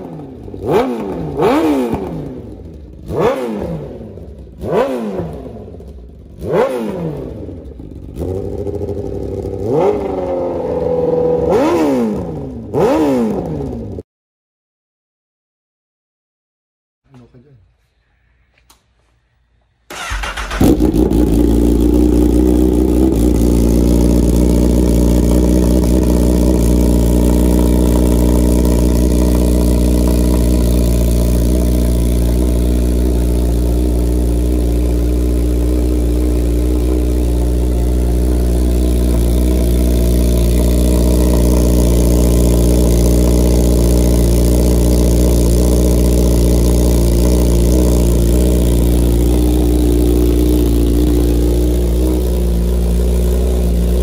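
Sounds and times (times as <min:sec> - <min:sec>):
motorcycle engine starting and idling: 0:00.0 - 0:14.0, 0:19.8 - 0:54.0.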